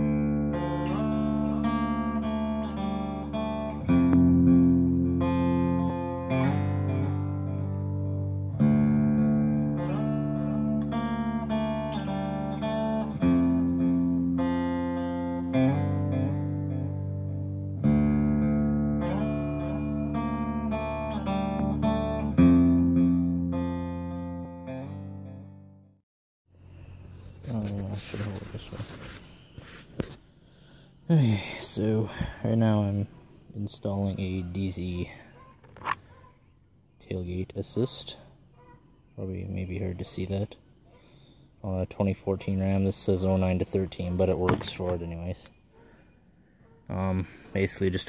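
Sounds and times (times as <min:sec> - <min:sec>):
guitar picking over low chords: 0:00.0 - 0:26.0.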